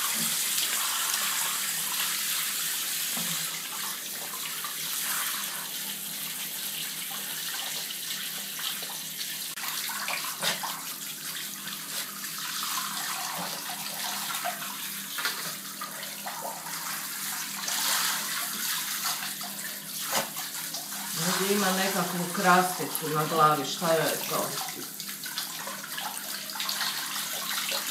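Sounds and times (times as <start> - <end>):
shower spray hissing: 21.0 - 24.7.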